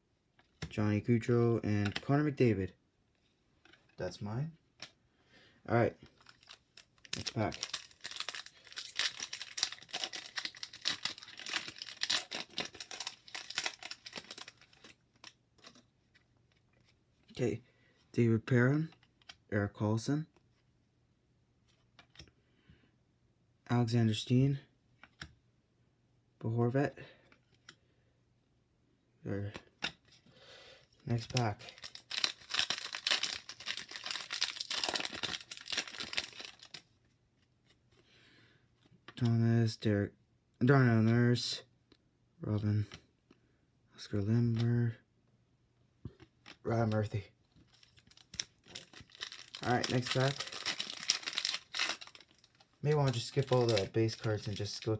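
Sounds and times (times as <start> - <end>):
foil wrapper crinkling and tearing: 6.1 - 15.4, 31.1 - 36.9, 47.7 - 54.9.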